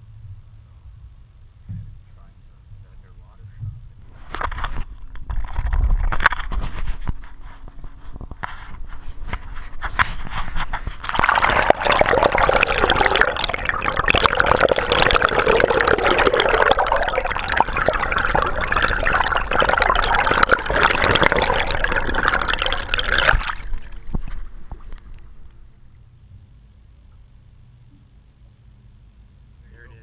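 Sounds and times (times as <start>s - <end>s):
water rushing and bubbling: 11.0s - 25.4s.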